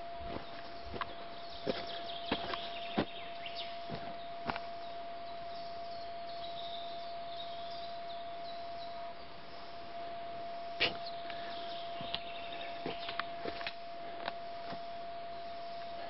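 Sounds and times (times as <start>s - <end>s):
footsteps on forest soil: 0.0s - 5.8s, 10.8s - 16.0s
steady high tone: 0.0s - 16.0s
small birds chirping: 0.2s - 16.0s.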